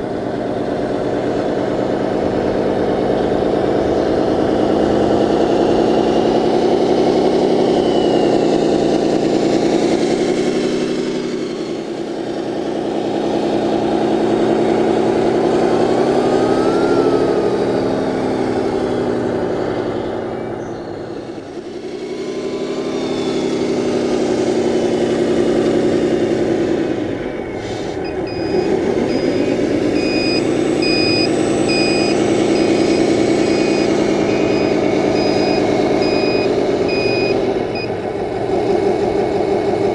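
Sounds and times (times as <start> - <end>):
simulated diesel truck engine: 0.0 - 39.9
reversing beeper: 6.8 - 12.1, 15.4 - 24.4, 27.2 - 38.0.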